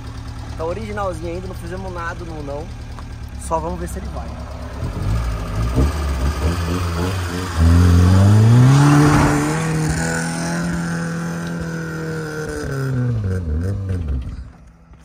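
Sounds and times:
car engine revving: 0.0s - 14.7s.

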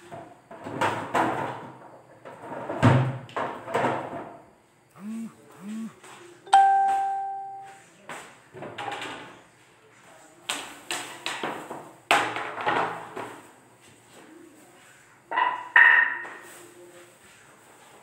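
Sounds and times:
bell-like ding: 6.5s - 7.8s.

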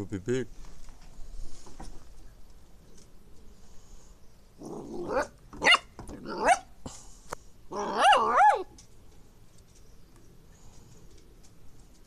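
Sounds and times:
puppy whining and yipping: 4.8s - 6.7s, 7.7s - 8.7s.

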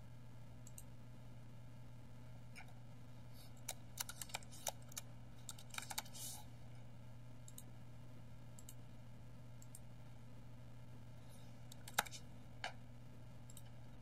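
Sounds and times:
low steady hum: 0.0s - 14.0s
typing on computer keyboard: 3.6s - 6.2s, 11.7s - 12.2s.

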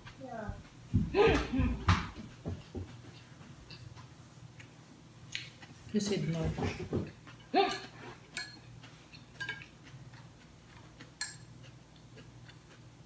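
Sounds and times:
chopsticks tapping a plate: 6.1s - 12.7s.

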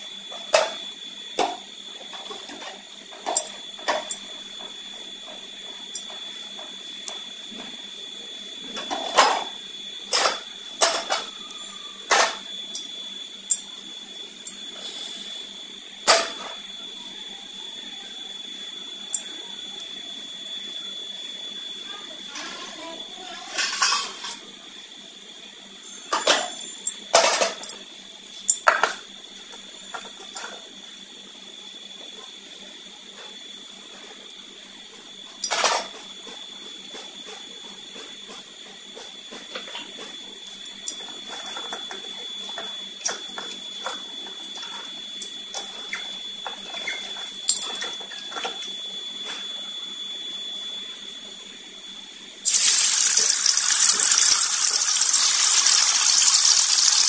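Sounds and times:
oil hissing in a wok: 52.4s - 57.0s
oil crackling: 52.5s - 57.0s.

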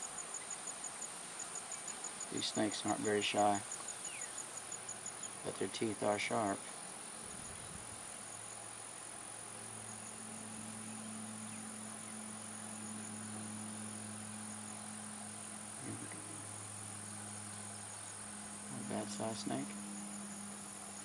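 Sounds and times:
insect trill: 0.0s - 21.0s
low hum: 9.7s - 21.0s.

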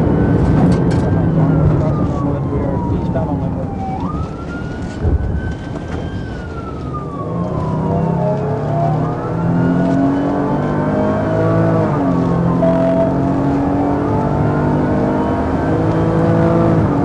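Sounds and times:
police siren wailing: 0.0s - 17.0s
car engine accelerating: 5.3s - 17.0s.

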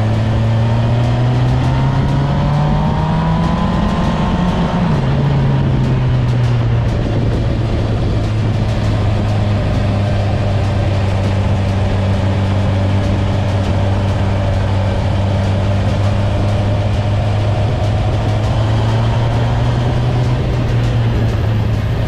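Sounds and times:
motorcycle engine droning: 0.0s - 22.0s.

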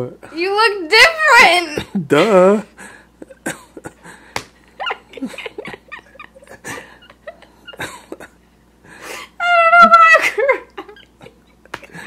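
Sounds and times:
woman laughing and crying: 3.2s - 8.4s, 9.1s - 12.0s.

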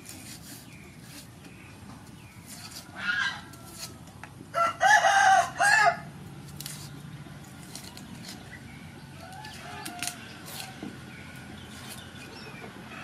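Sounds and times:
knife peeling onion skin: 0.0s - 1.4s, 2.0s - 4.2s, 6.3s - 12.3s.

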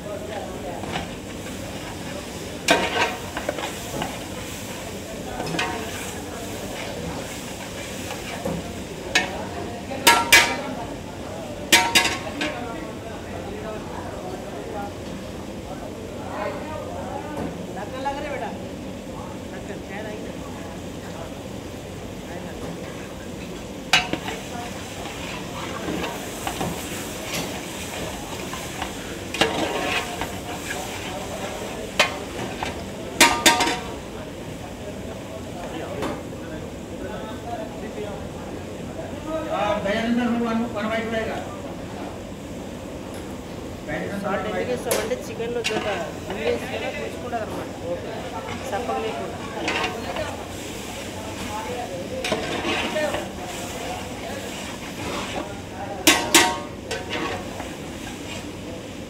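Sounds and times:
kitchen noise: 0.0s - 15.9s, 20.7s - 36.4s, 44.2s - 59.0s.

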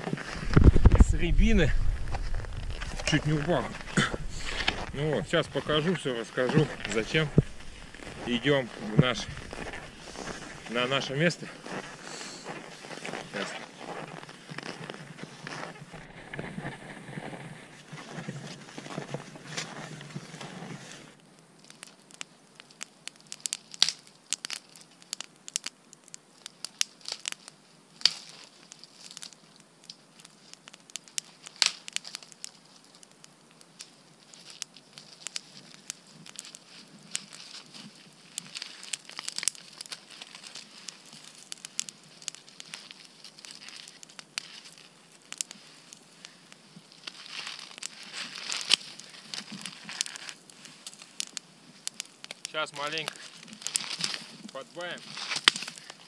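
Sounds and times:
campfire crackling and popping: 0.0s - 56.0s
crunching and rustling: 0.0s - 56.0s.

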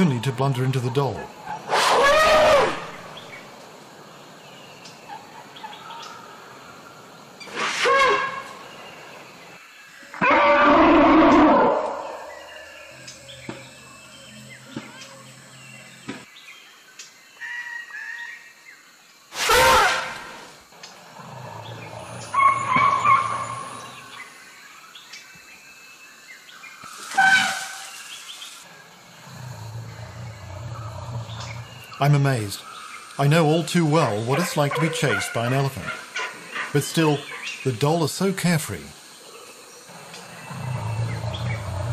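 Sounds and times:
elephants trumpeting: 1.6s - 3.1s, 7.5s - 8.6s, 10.1s - 12.4s, 19.3s - 20.5s, 21.1s - 24.0s, 27.0s - 28.0s.

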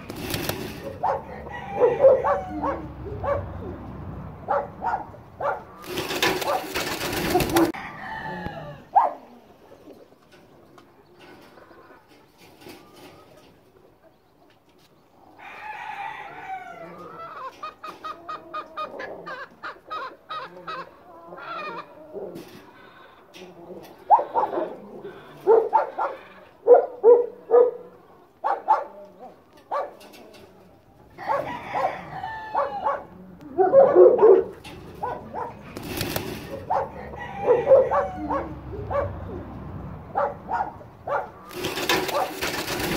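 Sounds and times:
hen clucking: 0.0s - 3.9s, 4.5s - 15.5s, 16.3s - 39.6s
rustle: 28.9s - 32.3s.

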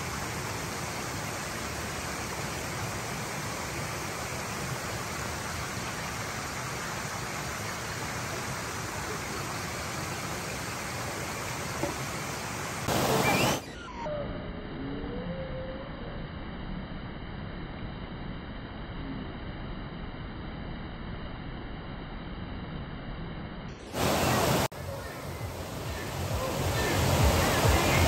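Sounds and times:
stream water rushing: 0.0s - 13.7s, 23.9s - 28.0s.

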